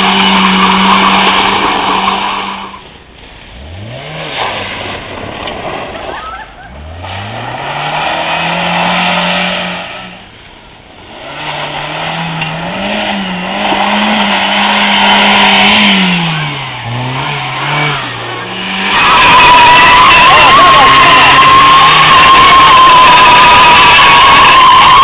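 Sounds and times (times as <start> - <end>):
tyres squealing: 0.0 - 2.8, 16.5 - 25.0
car engine revving: 0.0 - 10.4, 11.0 - 25.0.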